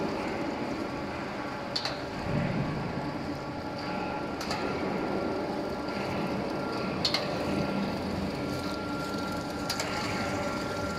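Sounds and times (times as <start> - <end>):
grinder machine hum with whine: 0.0 - 10.9.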